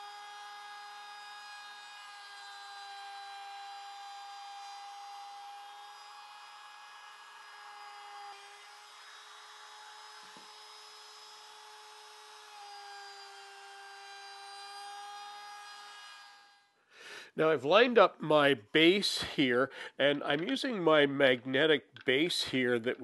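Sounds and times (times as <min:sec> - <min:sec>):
router whining while cutting wood: 0:00.0 - 0:16.7.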